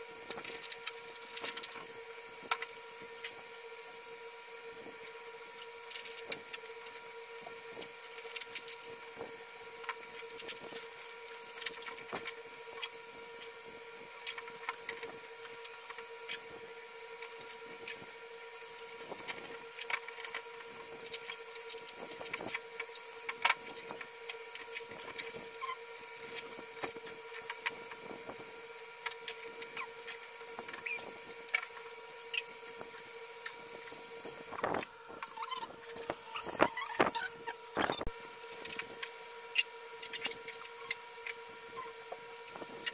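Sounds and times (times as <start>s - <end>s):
electrical hum: 0.0s - 42.9s.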